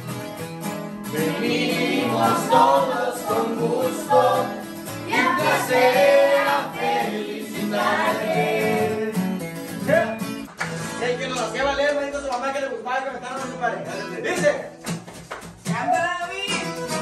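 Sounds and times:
acoustic guitars: 0:00.0 - 0:17.0
people singing: 0:01.1 - 0:09.4.

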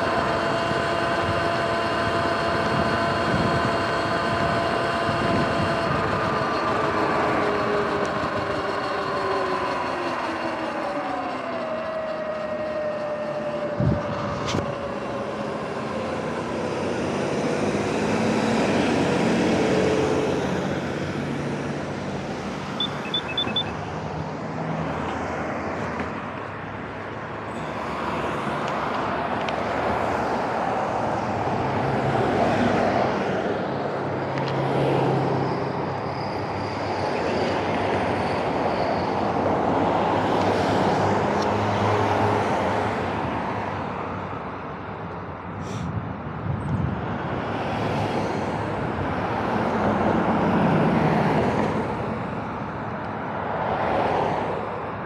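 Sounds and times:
cars passing on wet road: 0:00.0 - 0:55.0
quick high beeps: 0:22.8 - 0:23.9.

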